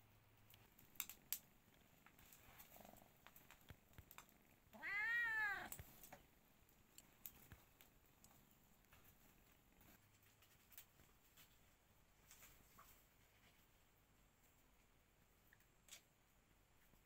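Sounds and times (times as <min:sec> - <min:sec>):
wood fire crackling: 0:00.4 - 0:11.5
kitten meowing: 0:04.8 - 0:05.8.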